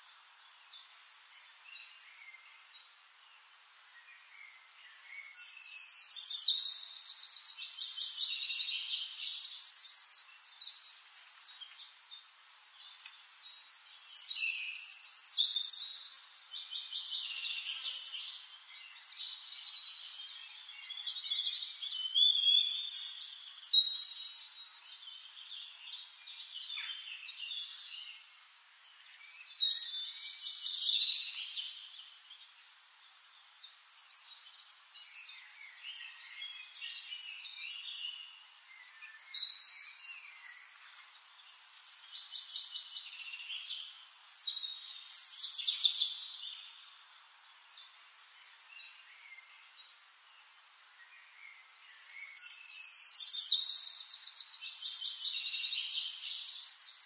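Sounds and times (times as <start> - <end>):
birds singing and chirping: 4.0 - 57.0.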